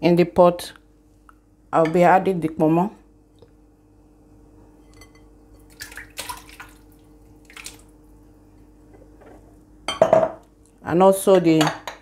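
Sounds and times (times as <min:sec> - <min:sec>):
chunks splashing into water: 0:05.7 - 0:07.8.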